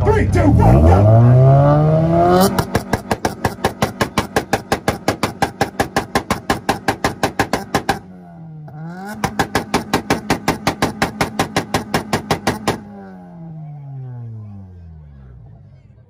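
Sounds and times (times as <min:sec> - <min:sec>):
car engine revving: 0:00.0 - 0:16.0
exhaust popping and banging: 0:02.1 - 0:13.0.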